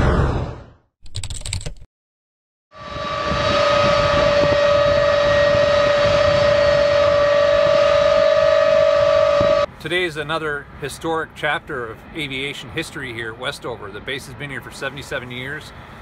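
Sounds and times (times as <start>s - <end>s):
jet engines whining: 2.8s - 9.7s.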